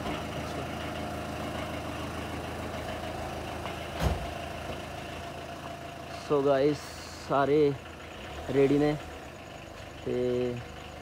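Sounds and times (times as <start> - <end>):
thump: 4.0 - 4.3.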